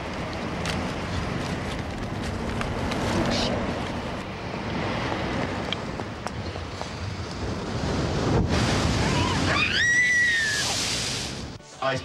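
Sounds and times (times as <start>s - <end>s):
wind: 0.0s - 12.0s
sea surf: 7.0s - 12.0s.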